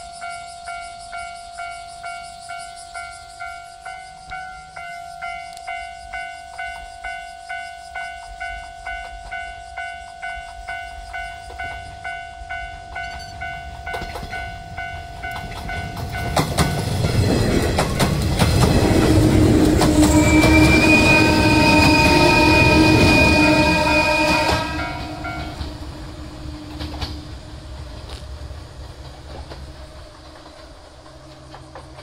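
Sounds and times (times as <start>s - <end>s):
level crossing warning bell: 0.0s - 17.1s, 18.9s - 26.1s
electric train passing: 0.0s - 32.0s
wheels clacking over rail joints: 8.8s - 32.0s
train horn: 18.7s - 27.5s.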